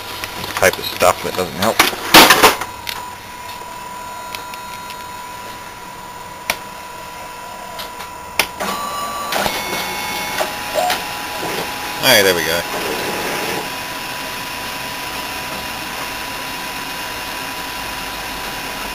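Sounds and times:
copier high whine: 0.0s - 18.9s
scanner motor tones: 2.6s - 15.4s.

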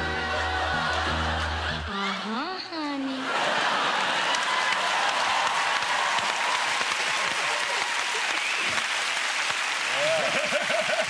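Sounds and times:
audience applauding: 3.3s - 11.0s.

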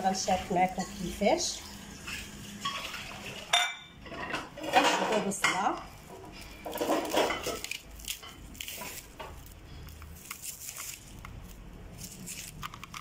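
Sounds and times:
rustling: 6.3s - 13.0s.

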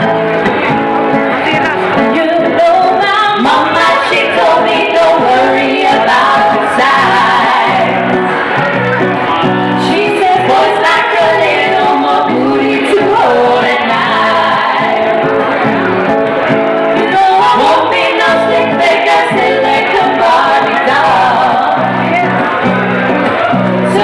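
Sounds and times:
acoustic guitar: 0.0s - 24.0s
women singing in harmony: 2.0s - 8.4s, 9.8s - 15.4s, 16.9s - 22.2s.

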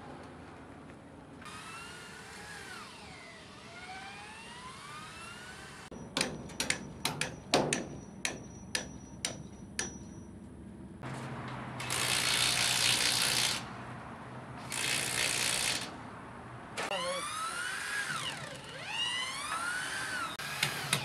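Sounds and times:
sharp metal knocks: 5.9s - 10.4s.

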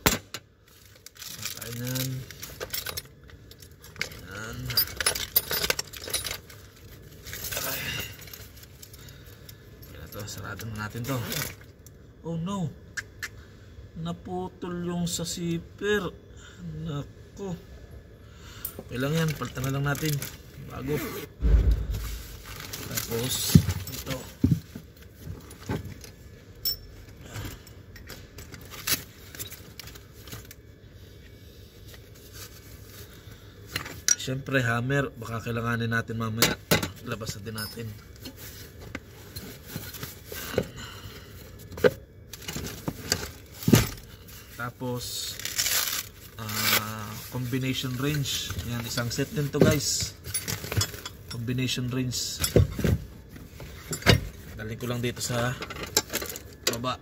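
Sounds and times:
metal tools clinking in a bag: 1.1s - 11.6s, 18.8s - 20.4s, 22.4s - 24.5s, 36.8s - 38.6s, 45.1s - 52.8s.

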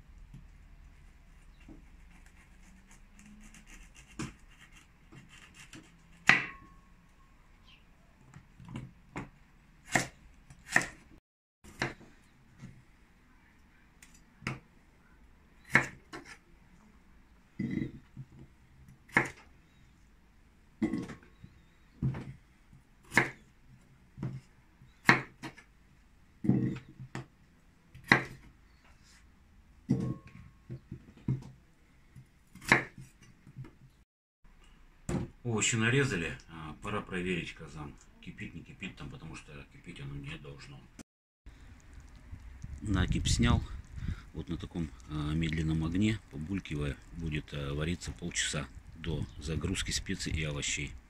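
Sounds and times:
knife slicing vegetables: 1.5s - 6.6s, 9.8s - 11.1s.

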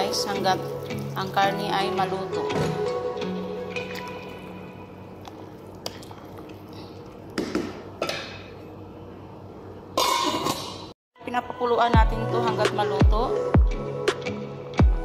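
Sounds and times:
stew simmering and bubbling: 3.8s - 9.0s
cookware clattering: 10.0s - 10.9s.

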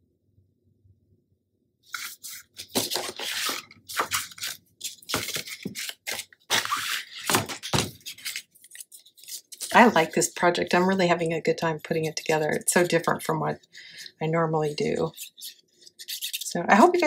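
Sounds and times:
paper rustling and scraping: 1.9s - 11.0s, 14.9s - 17.0s.

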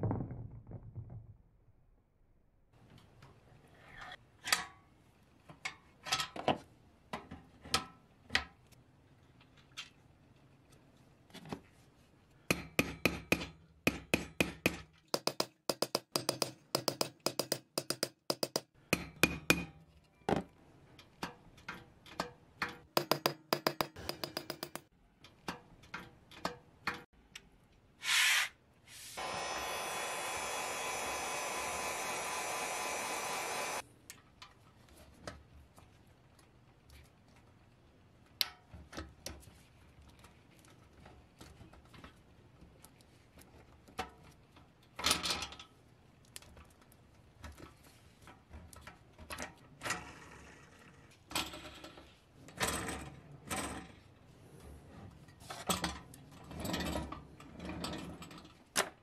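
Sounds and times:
hammer tapping metal caps: 12.5s - 19.7s, 23.0s - 24.9s
heat gun blowing hiss: 28.0s - 33.8s.

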